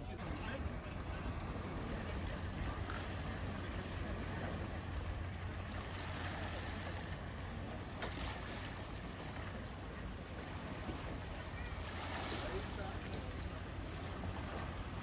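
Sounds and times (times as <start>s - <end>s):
sea waves splashing on rocks: 0.2s - 9.7s, 10.4s - 15.0s.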